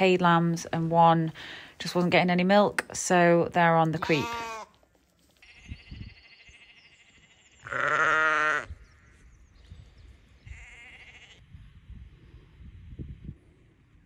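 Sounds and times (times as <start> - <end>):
sheep bleating: 4.0 - 4.8, 5.4 - 8.7, 10.4 - 11.4.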